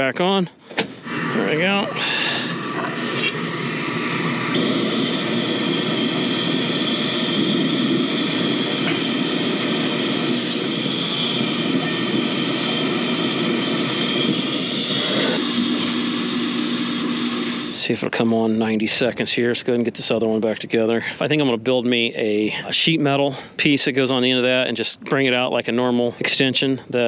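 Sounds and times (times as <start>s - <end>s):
blower air rush: 0.6s - 18.2s
low hum: 1.0s - 18.0s.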